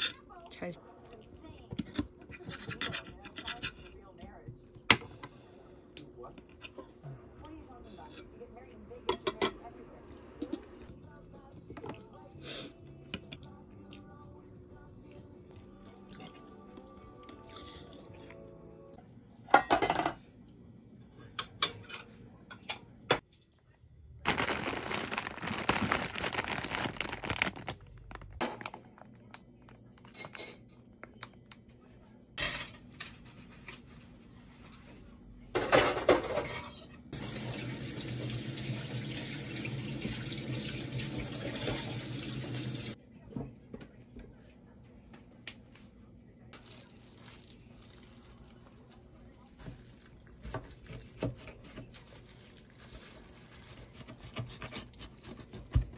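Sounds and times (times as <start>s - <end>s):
cookware and utensils clinking: 1.7s - 4.1s, 8.0s - 10.8s, 19.5s - 20.2s, 21.0s - 23.4s, 30.0s - 31.1s, 32.4s - 33.9s, 35.5s - 37.2s
water running into saucepan: 37.2s - 43.0s.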